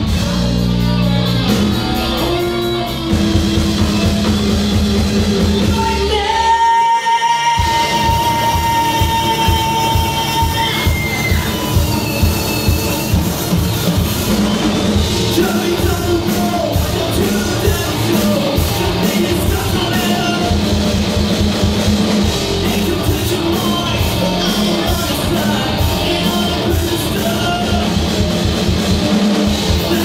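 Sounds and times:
rock band playing live: 0.0 - 30.0
person singing into microphone: 5.6 - 11.2.

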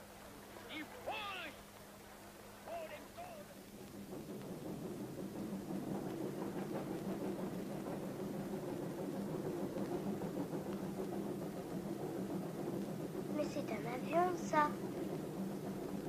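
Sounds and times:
train rumble inside carriage: 0.0 - 16.0.

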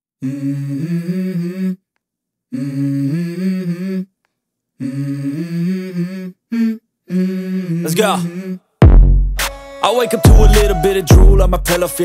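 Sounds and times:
wordless hummed vocal melody: 4.8 - 8.7, 9.8 - 12.0.

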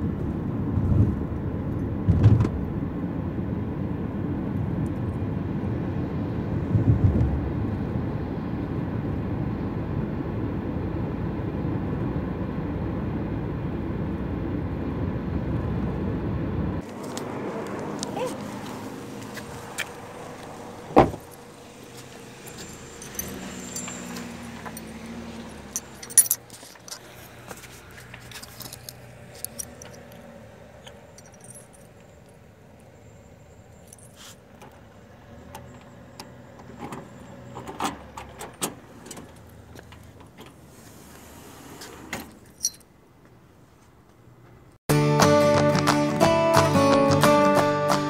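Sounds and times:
keys jangling: 22.5 - 27.2, 28.2 - 30.2, 30.8 - 32.1, 42.4 - 42.9.

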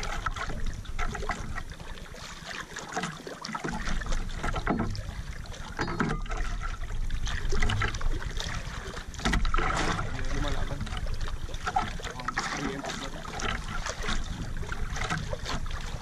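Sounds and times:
seawater splashing against canoe: 0.0 - 16.0
wind rumble on microphone: 13.3 - 16.0.

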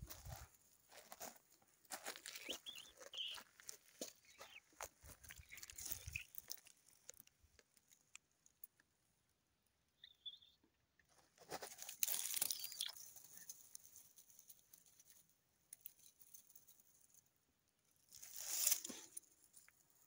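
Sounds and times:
leaves crunching underfoot: 1.9 - 6.8, 11.4 - 14.4, 18.1 - 19.2
high chirp: 2.2 - 3.4, 4.2 - 6.5, 10.0 - 10.6, 12.3 - 13.0.

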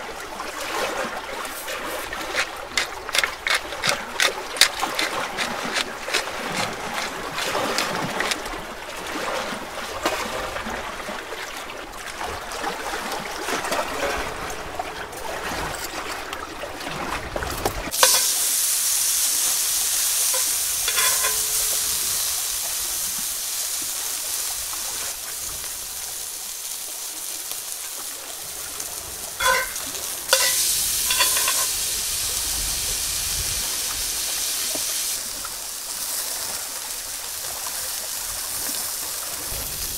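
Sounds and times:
steak sizzling in a skillet: 17.9 - 39.9
tongs clinking on a pan: 18.0 - 18.5, 20.2 - 22.2, 29.4 - 31.8.

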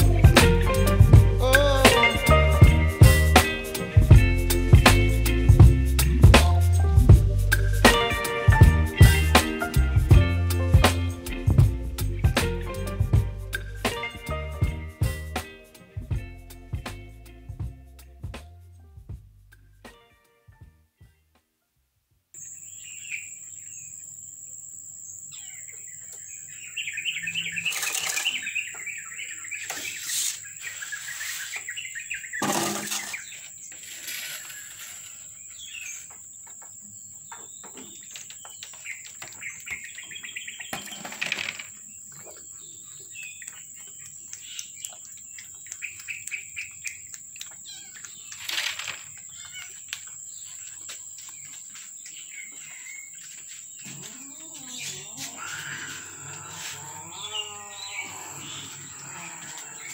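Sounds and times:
birds chirping and trilling: 22.4 - 59.9.

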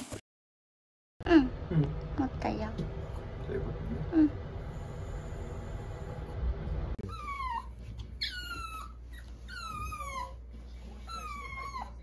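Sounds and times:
dog whining: 7.0 - 12.0.

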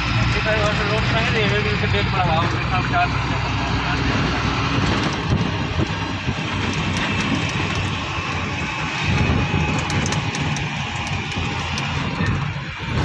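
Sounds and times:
road noise: 0.0 - 13.0
vehicle engine rumble: 0.0 - 13.0.

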